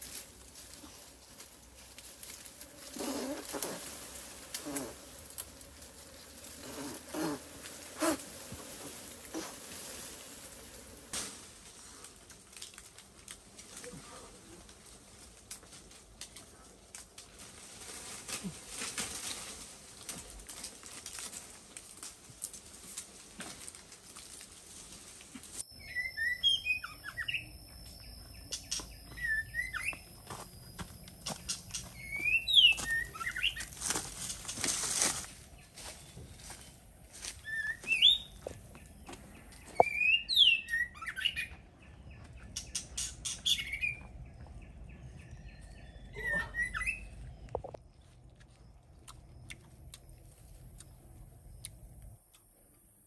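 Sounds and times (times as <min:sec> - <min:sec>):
leaves and twigs rustling and snapping: 0:00.0 - 0:25.6, 0:27.8 - 0:40.1
faint steady high tone: 0:25.6 - 0:32.2
songbird singing whistled phrases: 0:25.7 - 0:30.1, 0:31.4 - 0:33.7, 0:37.4 - 0:38.4, 0:39.7 - 0:41.5, 0:42.6 - 0:44.1, 0:45.8 - 0:47.2.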